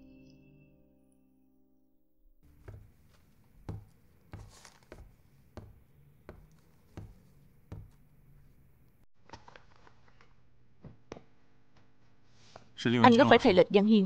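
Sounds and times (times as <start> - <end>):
footsteps on hard floor: 2.4 - 8.6.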